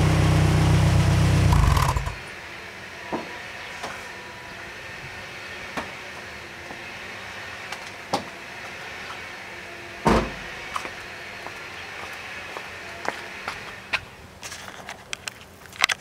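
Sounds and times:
car engine idling: 0.0s - 2.6s.

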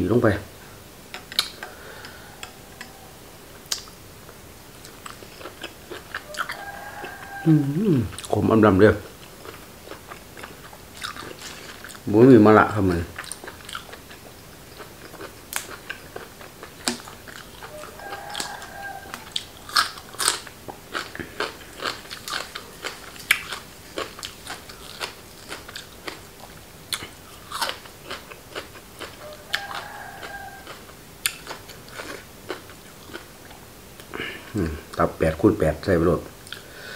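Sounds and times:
crunching and chewing food: 1.2s - 35.2s, 36.4s - 36.9s
rooster crowing faintly: 1.6s - 3.6s, 6.1s - 8.2s, 17.6s - 20.0s, 29.2s - 30.9s.

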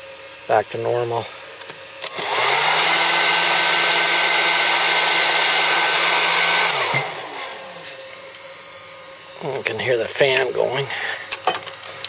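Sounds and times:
quiet whir: 0.0s - 12.0s
electric blower whirring: 1.6s - 8.5s.

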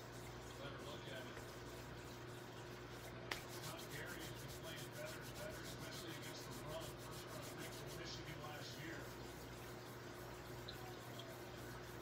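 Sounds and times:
hands rubbing together: 3.0s - 12.0s.

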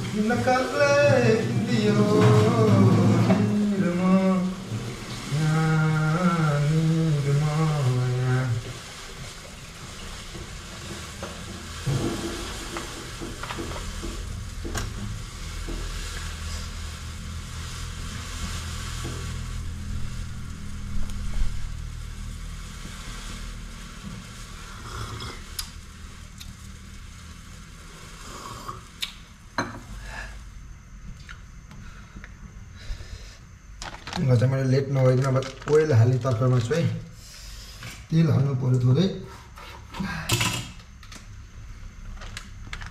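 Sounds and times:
low rumble: 0.0s - 8.8s, 11.8s - 28.3s
gas burner hissing: 0.0s - 42.9s.

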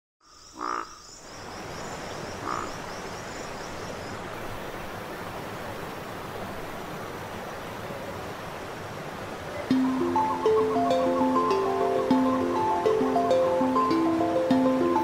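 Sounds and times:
croaking animal calls: 0.3s - 1.1s, 2.4s - 2.8s.

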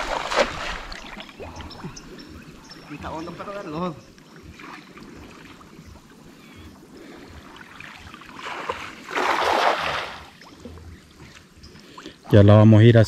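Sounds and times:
water splash: 0.0s - 1.4s, 7.9s - 10.4s
wading through muddy water: 0.0s - 12.4s.

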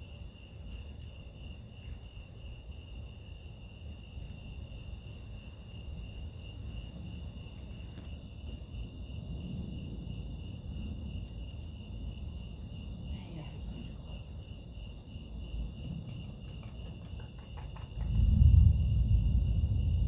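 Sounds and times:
crickets chirping: 0.0s - 20.0s
low rumble: 18.0s - 20.0s.

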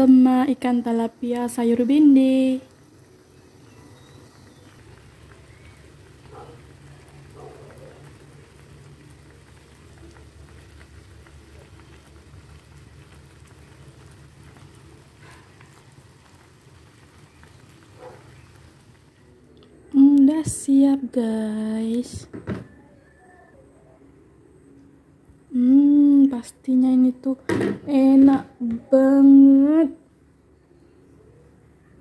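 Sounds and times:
curry bubbling and crackling: 0.6s - 20.7s.

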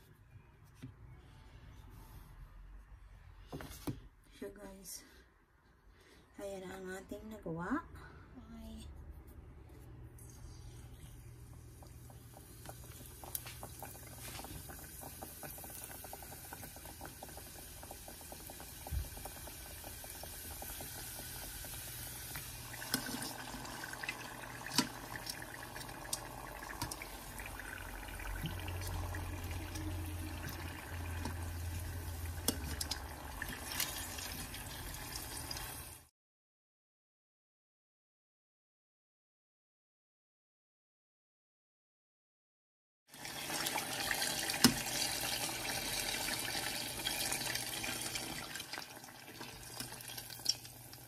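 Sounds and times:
oil sizzling: 10.7s - 36.1s, 43.1s - 51.0s.

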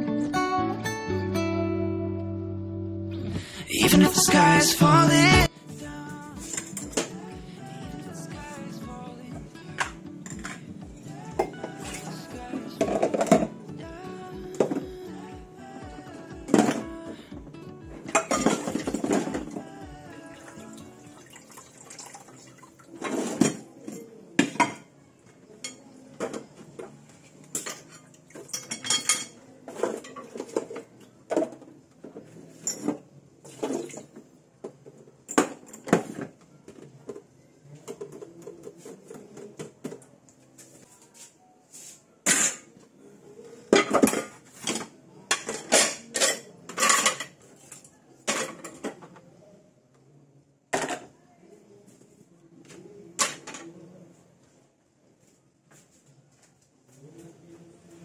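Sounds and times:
dishes and cutlery clinking: 6.4s - 7.2s, 9.8s - 13.6s, 18.1s - 19.6s, 21.9s - 24.9s, 25.5s - 37.2s, 42.2s - 42.8s, 43.7s - 49.1s, 53.2s - 53.7s.

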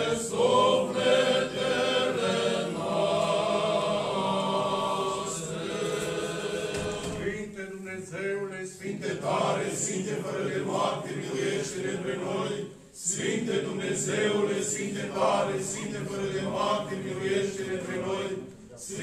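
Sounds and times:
male voices chanting: 0.0s - 19.0s.

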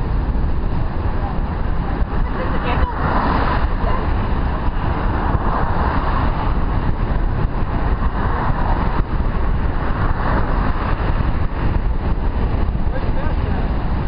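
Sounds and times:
wind rushing over microphone: 0.0s - 14.0s.

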